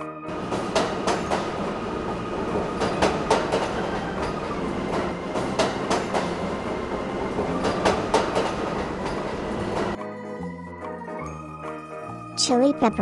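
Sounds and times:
train rumbling on rails: 0:00.3 - 0:10.0
wheels clattering over rail joints: 0:00.4 - 0:10.0.

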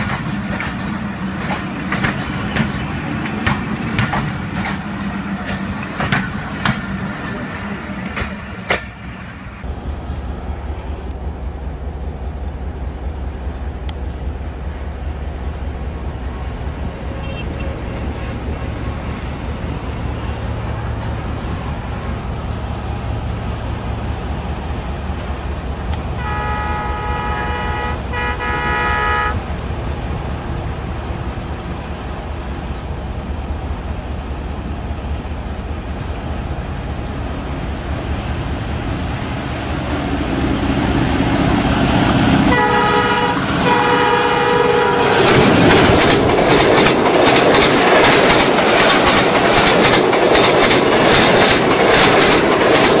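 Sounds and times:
train rushing past: 0:00.0 - 0:53.0
diesel locomotive horn blasts: 0:17.0 - 0:22.5, 0:26.0 - 0:29.5, 0:41.4 - 0:45.9.

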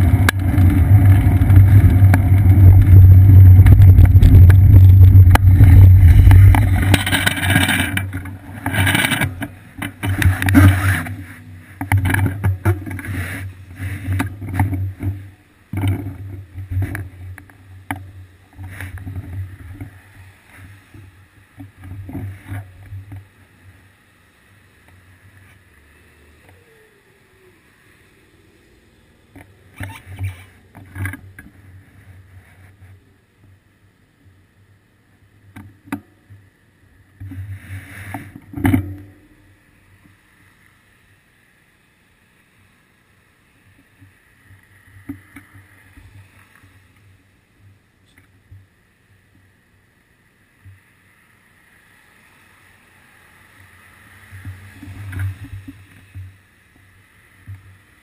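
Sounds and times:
wind rumble: 0:00.0 - 0:15.2
bicycle tyres on wet street: 0:00.0 - 0:58.0.

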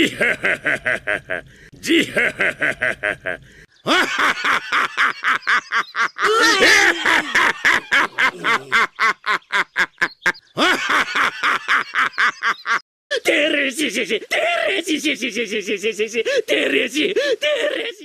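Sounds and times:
old man laughing heartily: 0:00.0 - 0:12.8, 0:14.0 - 0:18.0
other character laughing: 0:00.0 - 0:12.8.

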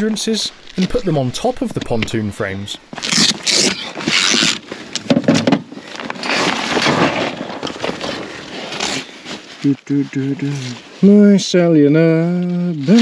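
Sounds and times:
nylon straps and fabric rustling: 0:02.9 - 0:11.2.

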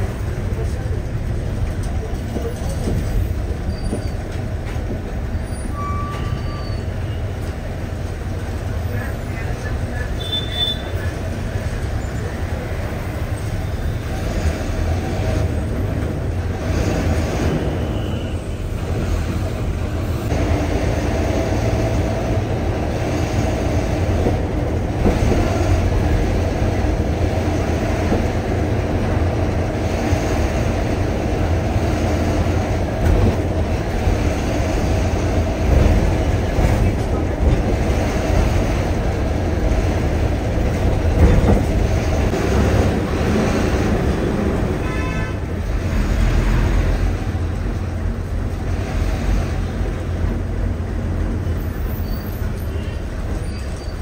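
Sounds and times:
bus engine rumbling: 0:00.0 - 0:54.0
road noise: 0:00.0 - 0:54.0.

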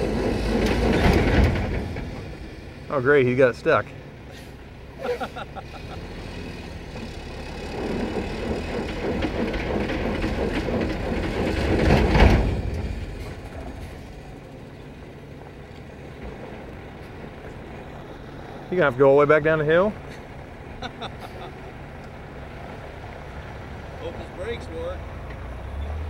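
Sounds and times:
truck diesel engine labouring: 0:00.0 - 0:26.0
wheels grinding on gravel: 0:06.9 - 0:20.1.

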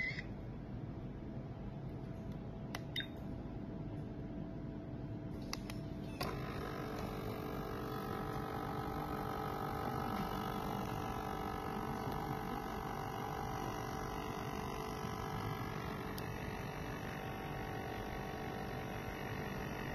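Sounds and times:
thermal printer motor whine: 0:06.2 - 0:19.9.

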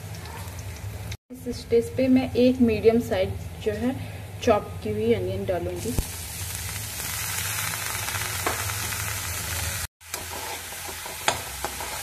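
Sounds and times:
onion sizzling in hot oil: 0:05.6 - 0:12.0.

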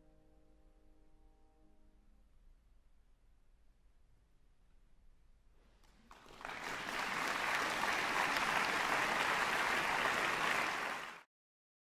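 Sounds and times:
audience applause: 0:05.9 - 0:11.3.

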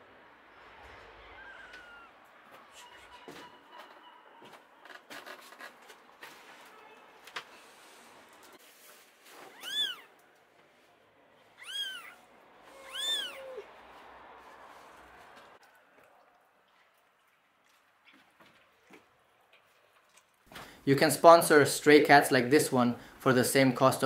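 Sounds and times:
kitten mewing: 0:01.2 - 0:02.2, 0:09.5 - 0:10.1, 0:11.6 - 0:13.6
faint clicks and rustles: 0:03.8 - 0:11.1, 0:14.0 - 0:20.8.

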